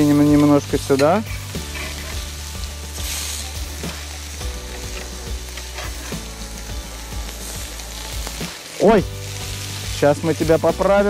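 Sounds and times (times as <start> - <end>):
metal spatula shifting patties: 0.0 - 2.3
meat patties sizzling on a grill: 0.0 - 11.0.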